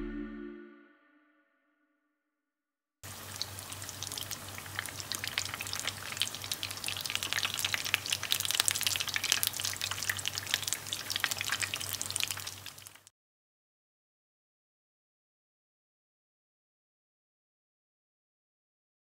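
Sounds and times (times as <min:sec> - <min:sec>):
oil sizzling with pops: 0:03.0 - 0:13.1.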